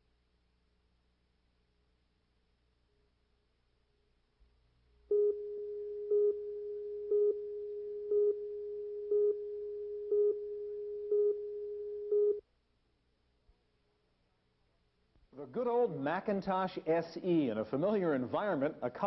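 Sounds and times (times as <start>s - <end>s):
louder beeps: 5.1s - 12.4s
steady test tone: 5.1s - 12.4s.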